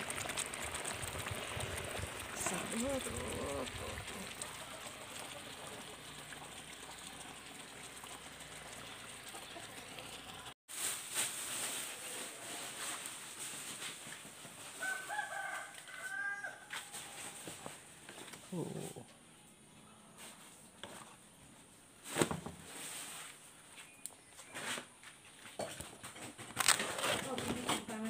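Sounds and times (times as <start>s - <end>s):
rooster crowing: 14.7s - 17.4s.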